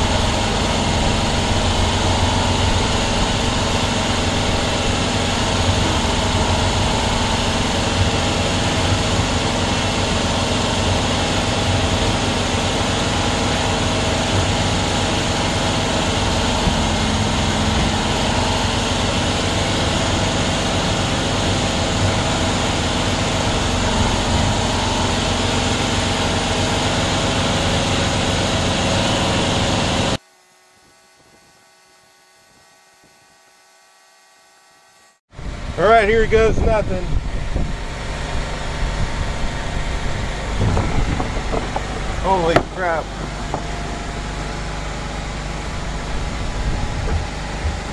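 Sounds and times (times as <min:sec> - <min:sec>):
pickup engine idling: 0:00.0 - 0:30.2, 0:35.4 - 0:47.9.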